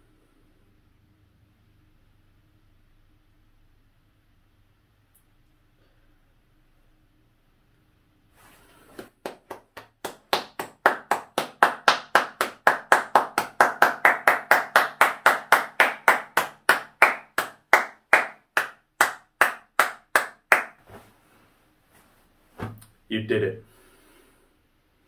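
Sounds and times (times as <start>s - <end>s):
person clapping hands: 8.9s - 20.8s.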